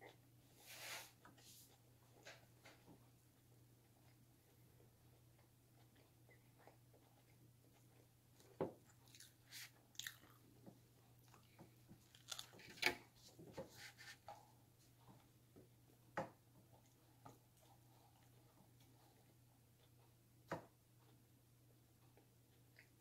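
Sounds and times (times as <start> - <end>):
person chewing and crunching food: 0.0 - 13.4.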